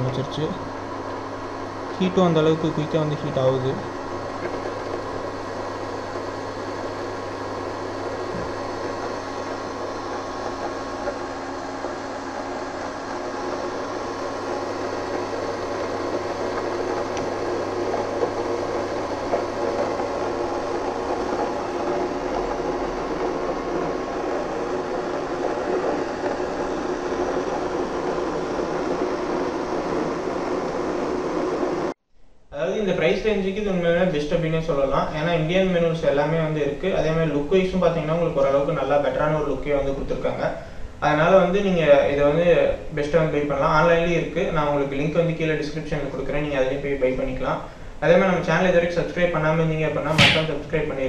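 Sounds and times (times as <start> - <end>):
cooling fan whirring: 0.0 - 51.0.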